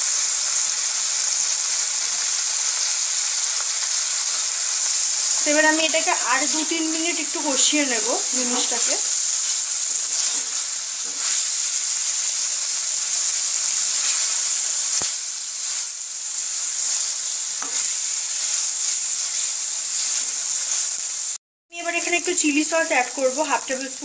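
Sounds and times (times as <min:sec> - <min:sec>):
meat sizzling in a wok: 0:00.0 - 0:24.0
spatula scraping a wok: 0:03.6 - 0:21.4.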